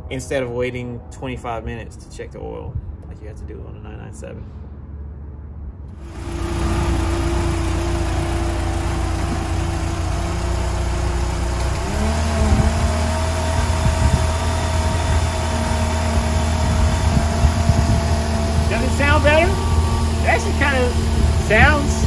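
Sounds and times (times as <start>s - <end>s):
car engine idling: 5.9s - 22.0s.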